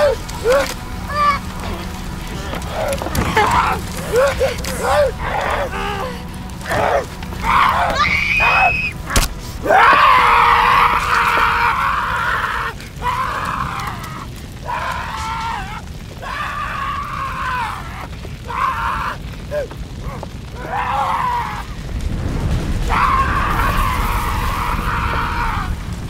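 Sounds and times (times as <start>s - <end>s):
woman screaming: 3.3s - 9.0s, 9.6s - 19.7s.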